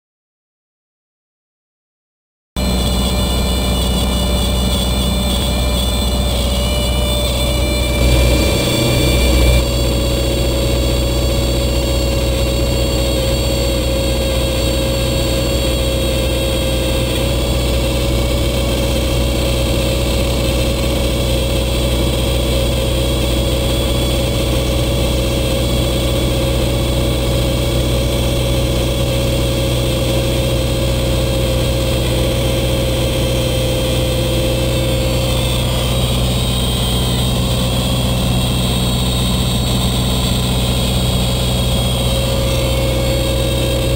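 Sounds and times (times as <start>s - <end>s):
stall warning horn: 2.6s - 9.7s
plane engine and propeller droning: 2.6s - 43.9s.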